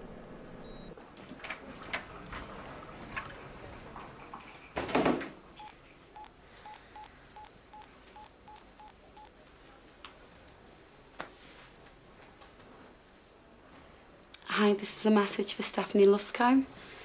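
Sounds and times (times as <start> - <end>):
phone keypad beeps: 5.6 - 9.3.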